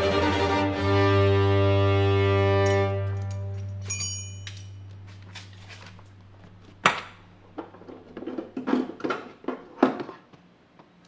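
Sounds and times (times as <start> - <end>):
background music: 0.0 - 4.7
knocks and rattles of plastic part: 6.9 - 10.3.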